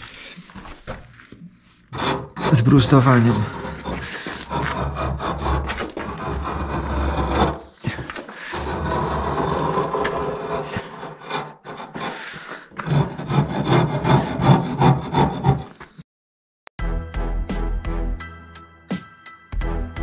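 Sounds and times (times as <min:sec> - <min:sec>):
hand tool scraping masonry: 0:01.9 - 0:16.0.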